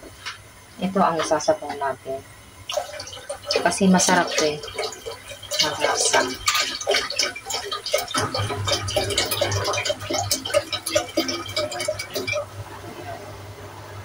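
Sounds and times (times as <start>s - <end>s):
broth pouring into liquid: 2.6s - 12.6s.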